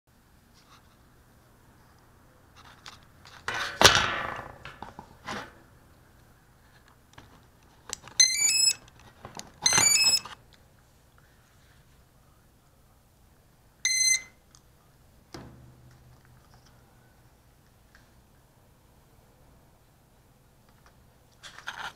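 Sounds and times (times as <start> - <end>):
faint low hum: 0.1 - 21.9
arming beep: 8.2 - 8.8, 9.6 - 10.4, 13.8 - 14.4.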